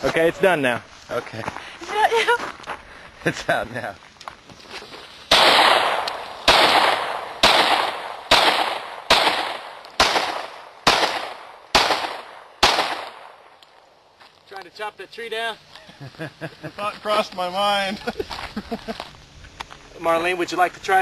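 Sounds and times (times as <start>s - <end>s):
handgun shots: 5.3s - 13.3s.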